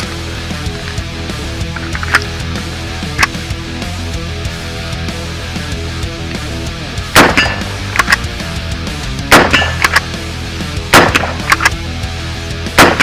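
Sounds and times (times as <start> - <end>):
heavy metal music: 0.0 - 13.0
rifle shots: 7.1 - 8.3, 9.3 - 10.2, 10.9 - 11.8, 12.8 - 13.0
sharp metallic clacks: 9.3 - 10.1.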